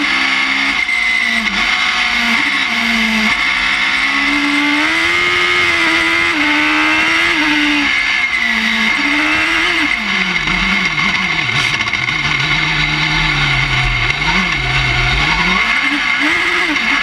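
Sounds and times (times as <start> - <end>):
motorcycle engine revving: 0.0 - 17.0
steady high whine: 5.1 - 17.0.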